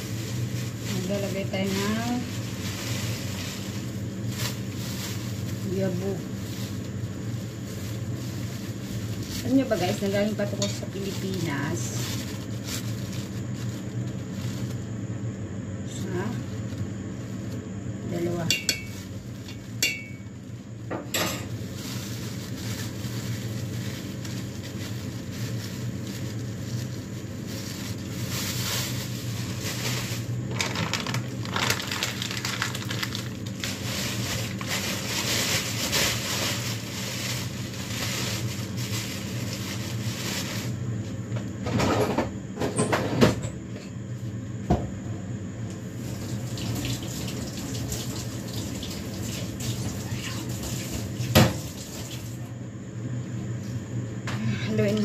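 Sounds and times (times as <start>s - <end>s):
plastic packaging rustling: 0.0s - 15.0s, 16.0s - 20.7s, 21.4s - 40.8s.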